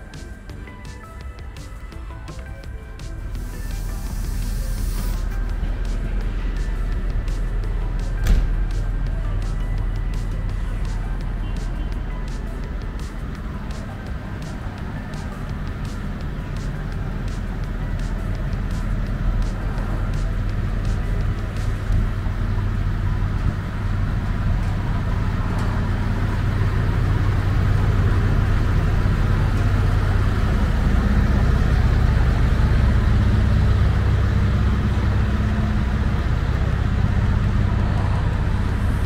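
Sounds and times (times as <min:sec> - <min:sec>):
train diesel engines humming: 0:00.0 - 0:39.0.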